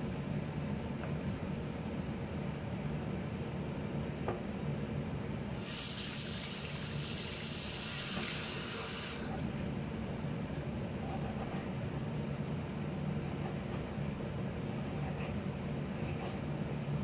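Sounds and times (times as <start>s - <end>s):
steady low hum: 0.0s - 17.0s
water running from a tap: 5.6s - 9.3s.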